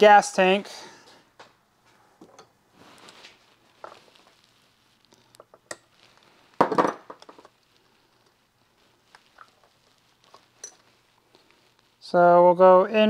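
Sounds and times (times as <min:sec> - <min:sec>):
scraping rustle: 0:02.7 - 0:05.3.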